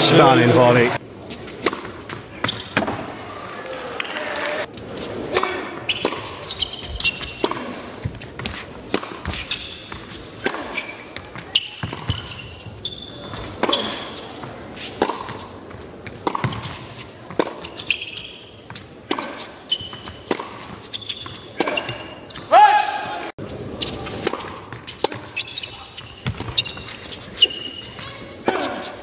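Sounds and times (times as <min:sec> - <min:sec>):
shoes squeaking on court: 0:01.2 - 0:03.3, 0:04.8 - 0:22.5, 0:23.4 - 0:29.0
tennis ball bouncing on court: 0:01.5 - 0:03.2, 0:05.3 - 0:22.5, 0:23.8 - 0:28.7
tennis ball struck by rackets: 0:01.6 - 0:03.1, 0:05.3 - 0:12.4, 0:14.9 - 0:17.8, 0:20.0 - 0:22.0, 0:23.8 - 0:25.4.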